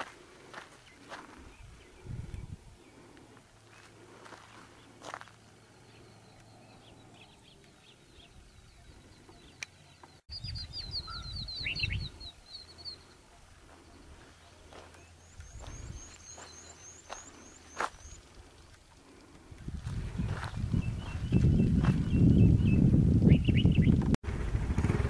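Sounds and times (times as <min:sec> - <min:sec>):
low rumble on microphone: 0:01.4 - 0:03.0, 0:19.4 - 0:25.0
small bird trilling: 0:09.3 - 0:13.0.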